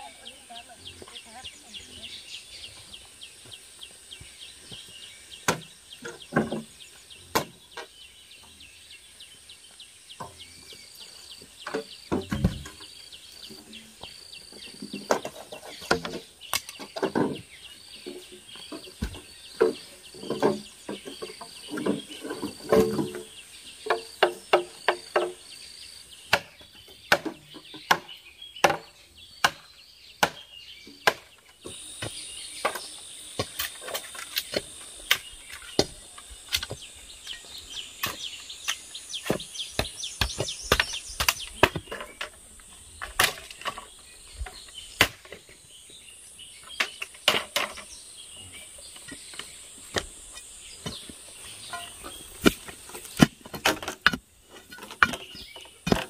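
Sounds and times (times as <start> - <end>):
chopping on bamboo: 26.3 - 31.3, 39.2 - 42.0
high insect drone: 31.6 - 41.5.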